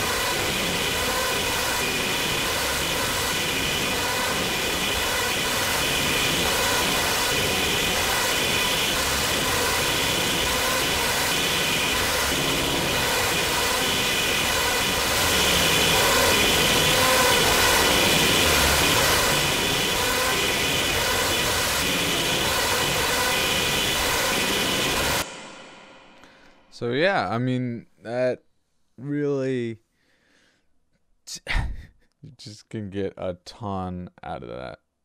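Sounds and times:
noisy feedback drone: 0.0s - 26.9s.

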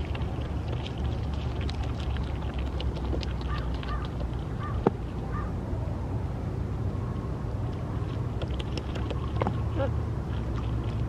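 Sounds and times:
beaver chewing leaves: 0.0s - 5.2s.

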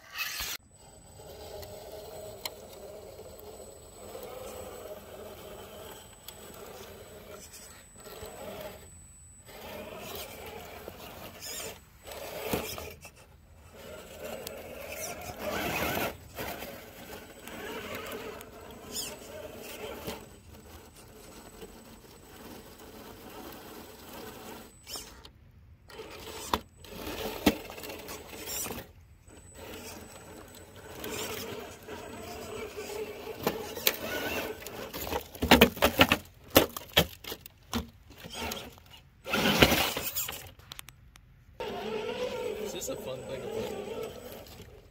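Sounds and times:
electric motor and drivetrain whine: 0.0s - 35.4s, 41.6s - 44.9s
tyres scraping on stone: 9.5s - 25.2s, 25.9s - 40.7s, 41.6s - 44.9s.

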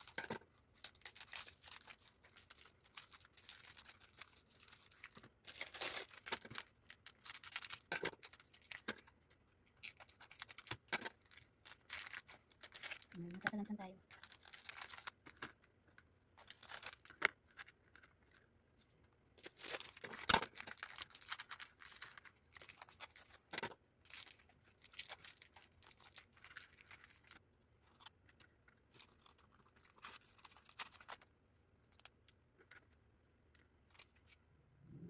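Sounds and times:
plastic rustling and crinkling: 0.0s - 34.5s.

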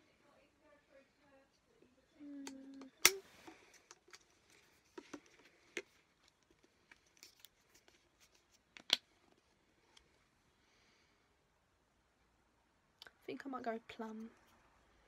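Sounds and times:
plastic bottles tapping and clicking: 4.9s - 6.7s.

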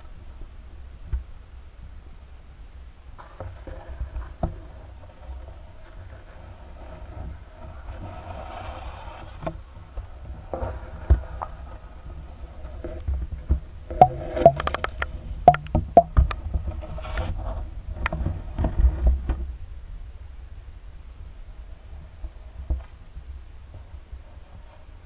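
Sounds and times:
muffled underwater handling knocks: 14.0s - 14.9s, 15.5s - 16.3s.

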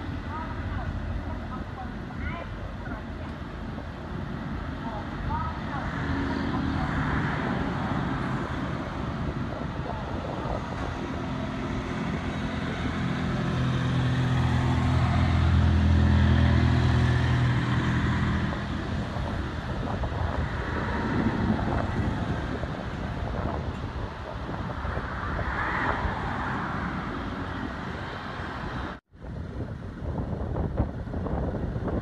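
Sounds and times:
background traffic noise: 0.0s - 32.0s
vehicle engine hum: 0.0s - 32.0s.

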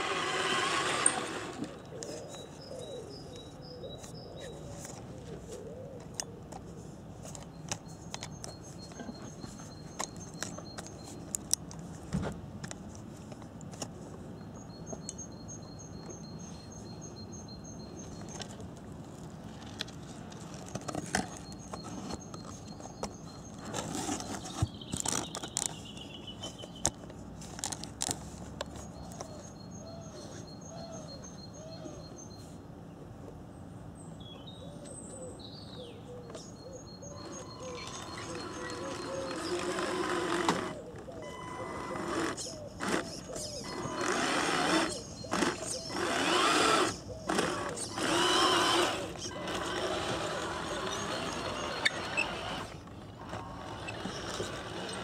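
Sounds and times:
toy truck rolling over twigs: 0.0s - 2.2s, 19.5s - 26.6s, 27.4s - 29.2s, 37.2s - 55.0s.

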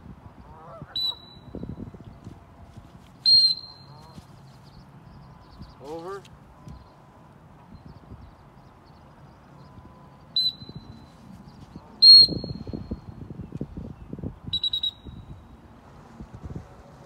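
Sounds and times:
dog whistle blasts: 1.0s - 1.5s, 3.3s - 3.8s, 12.0s - 12.7s, 14.5s - 15.2s
low scuffling noise: 2.2s - 3.2s, 3.8s - 4.8s, 11.0s - 12.0s.

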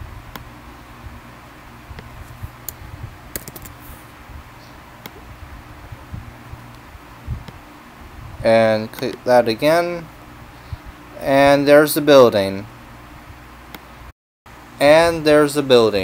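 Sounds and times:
steady low hum: 0.0s - 16.0s
keyboard and mouse clicks: 3.4s - 3.8s.

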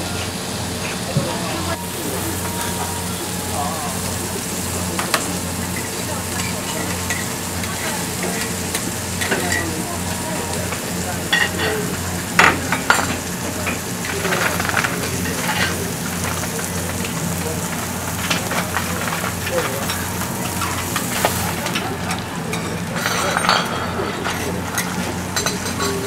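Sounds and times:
food sizzling on a griddle: 0.0s - 26.0s.

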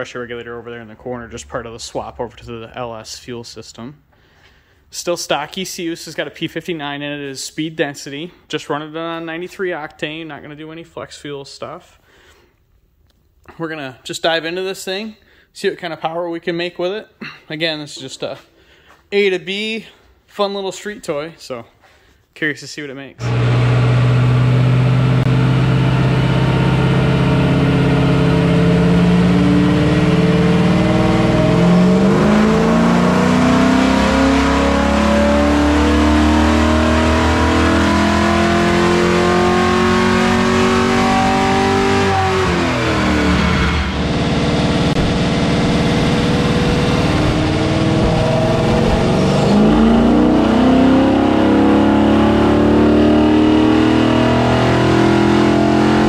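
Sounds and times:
engine revving under load: 23.2s - 56.0s.

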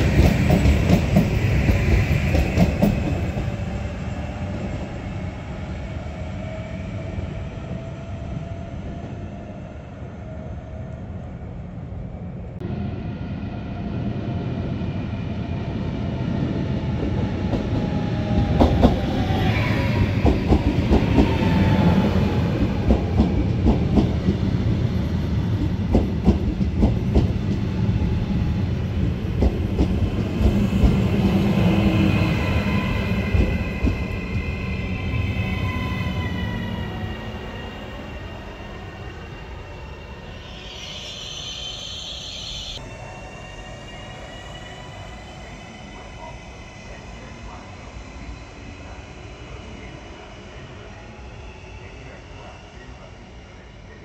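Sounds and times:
electric train rumble: 0.0s - 54.0s
train whine falling in pitch: 39.9s - 45.2s.

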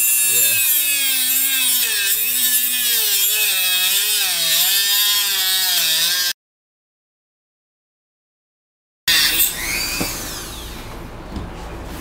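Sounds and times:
rotary tool grinding metal: 0.0s - 6.4s.

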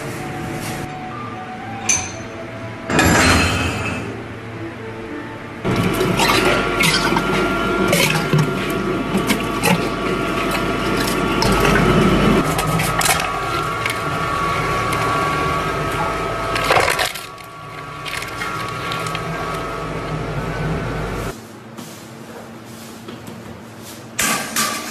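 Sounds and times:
meat crackling through grinder: 5.7s - 20.5s
meat grinder whining: 5.7s - 21.2s.

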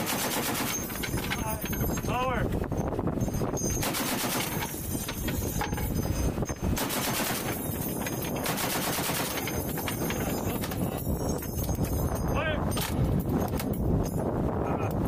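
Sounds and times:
machine gun bursts: 0.0s - 1.1s, 3.8s - 4.8s, 6.8s - 7.8s, 8.4s - 9.5s.

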